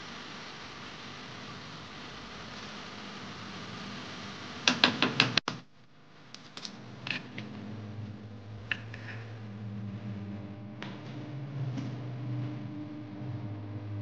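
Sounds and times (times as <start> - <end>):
herbs sizzling: 6.4 - 10.6.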